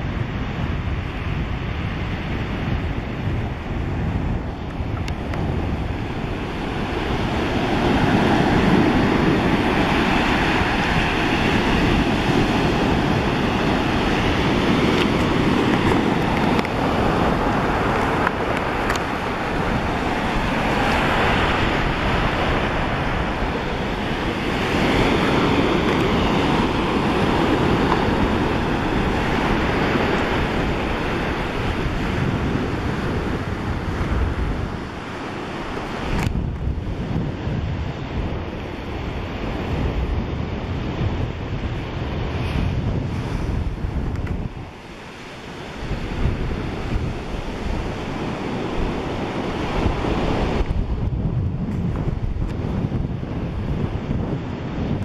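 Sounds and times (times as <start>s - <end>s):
wind buffeting microphone: 0.0s - 55.0s
surf breaking on rocks: 4.9s - 38.0s.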